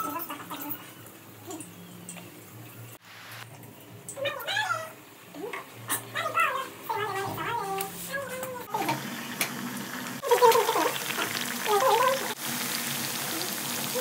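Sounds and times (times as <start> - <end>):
hot oil sizzling: 8.7 - 14.0.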